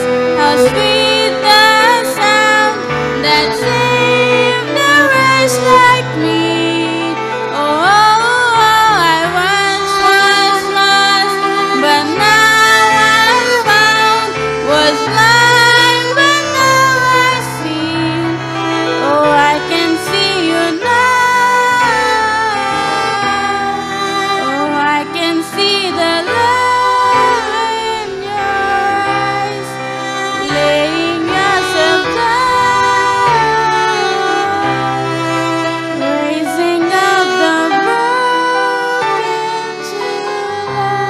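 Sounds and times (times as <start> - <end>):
piano: 0.0 - 41.0
violin: 0.0 - 41.0
woman singing: 0.0 - 41.0.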